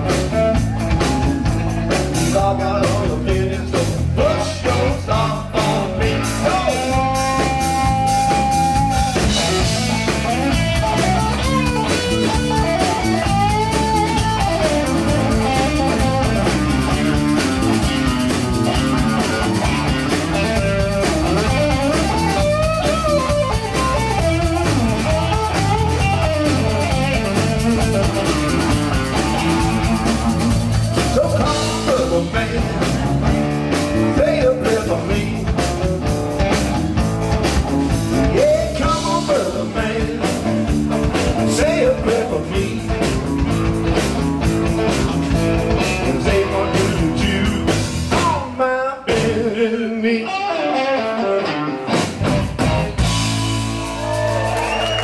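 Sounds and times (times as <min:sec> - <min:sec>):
steady drum beat: 0:00.0 - 0:49.5, 0:52.0 - 0:55.0
bass guitar: 0:00.0 - 0:55.0
electric guitar solo: 0:07.2 - 0:16.9, 0:50.2 - 0:52.0.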